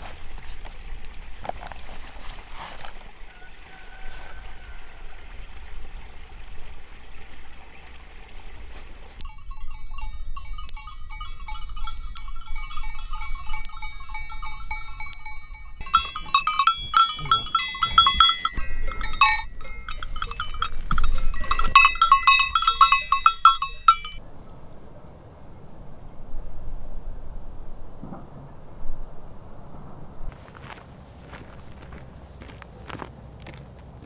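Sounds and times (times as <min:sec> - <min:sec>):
cowbells clanking: 0:09.2 - 0:24.2.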